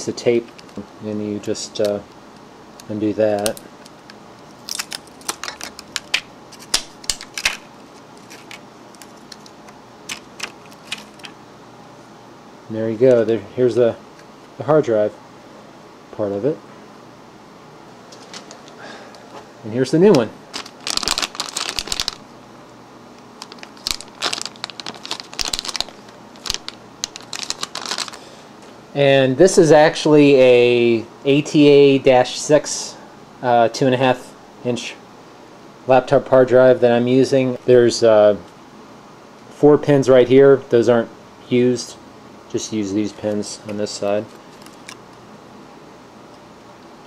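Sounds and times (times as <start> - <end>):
tape peeling off with crackles: 3.4 - 11.3, 20.5 - 22.2, 23.3 - 28.2, 44.3 - 45.2
plastic bag crinkling: 4.5 - 11.4, 20.1 - 22.3, 23.3 - 28.3, 44.2 - 45.2.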